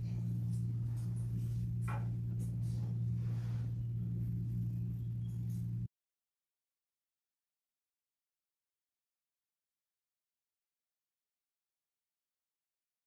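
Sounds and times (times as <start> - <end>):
steady low hum: 0.0 - 5.9.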